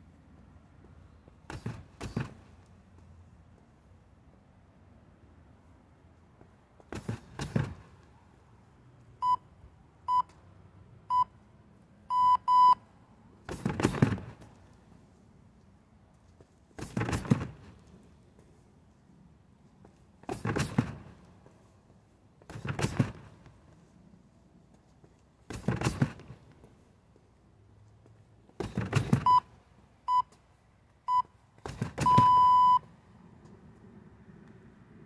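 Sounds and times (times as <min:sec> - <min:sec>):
interval timer beeps: 0:32.0 - 0:32.8.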